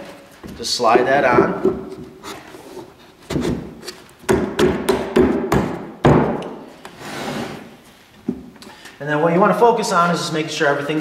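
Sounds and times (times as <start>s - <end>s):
hollow wooden knocks: 1.2s - 2.2s
soft wooden scrape: 6.9s - 8.0s.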